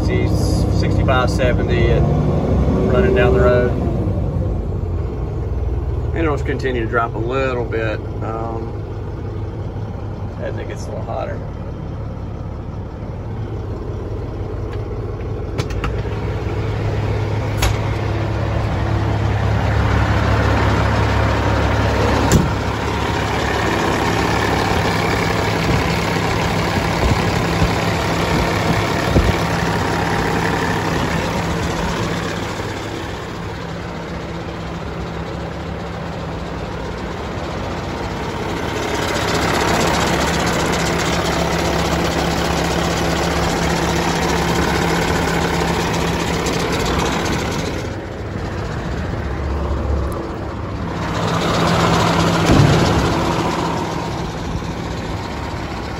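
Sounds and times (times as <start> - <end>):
diesel engine idling: 0.0 - 55.9
sharp knocks: 52.4 - 53.6.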